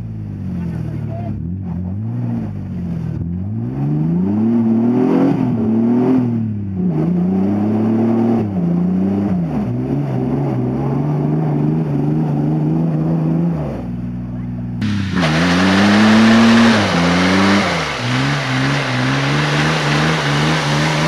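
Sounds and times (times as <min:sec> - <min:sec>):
suv engine revving: 0:00.0 - 0:21.0
wheels spinning in mud: 0:14.8 - 0:21.0.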